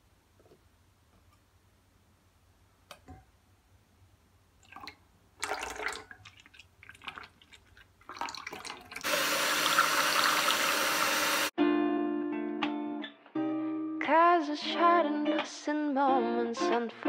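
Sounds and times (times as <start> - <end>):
electric hand mixer whisking: 9.0 - 11.5.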